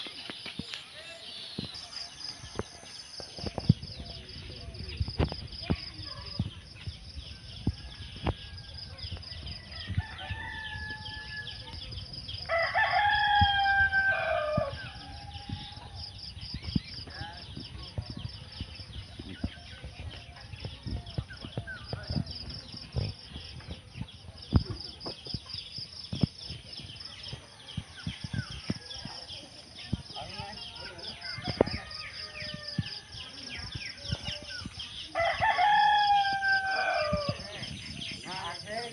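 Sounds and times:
small birds chirping: 0.0 - 38.9
roosters crowing: 9.6 - 11.7, 12.4 - 16.0, 31.0 - 33.3, 35.1 - 38.7
rooster crowing: 12.5 - 15.6, 35.2 - 37.4.

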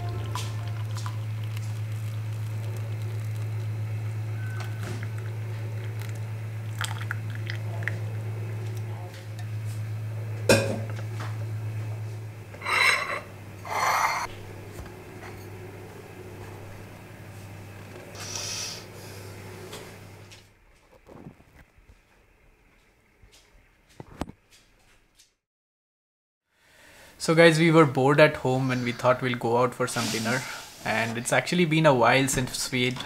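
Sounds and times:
steady low hum: 0.0 - 24.3.

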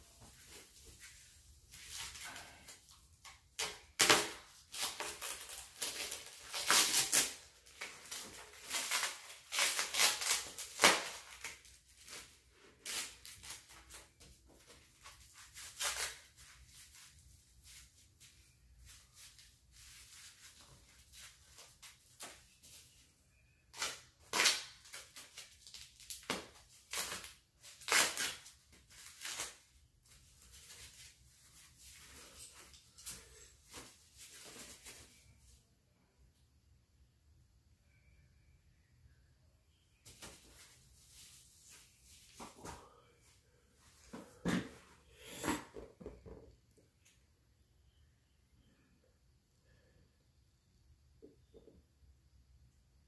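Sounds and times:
foam wrap rustling and tearing: 1.7 - 14.1, 15.0 - 17.1, 23.7 - 31.2.

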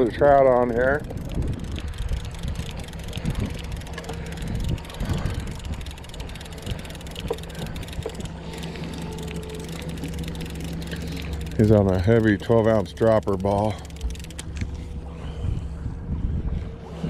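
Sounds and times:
wind buffeting microphone: 0.0 - 8.4, 14.4 - 17.0
outboard motor running: 0.0 - 17.0.

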